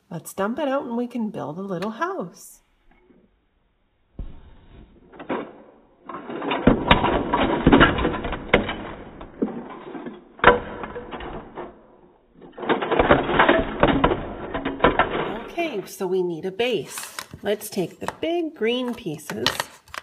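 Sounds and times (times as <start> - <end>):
plastic bricks clattering: 5.0 - 16.0, 16.8 - 20.0.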